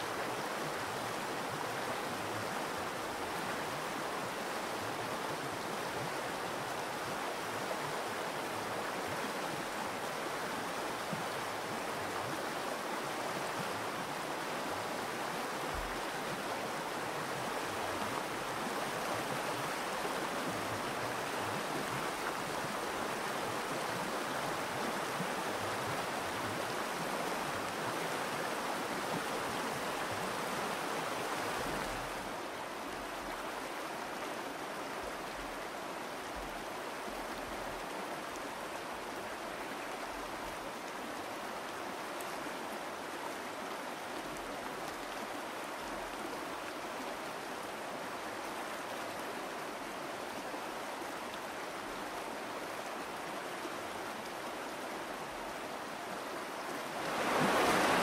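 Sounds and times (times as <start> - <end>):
river rushing over rocks: 0.0 - 58.0.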